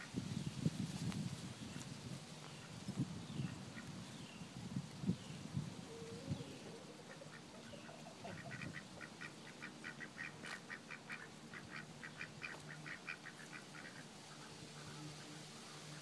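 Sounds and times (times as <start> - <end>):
distant ducks quacking: 6.3 - 16.0.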